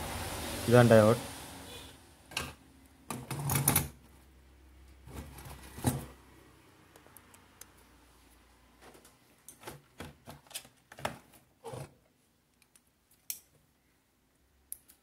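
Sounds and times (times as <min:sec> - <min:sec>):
hands handling circuit board: 0:08.8 - 0:13.5.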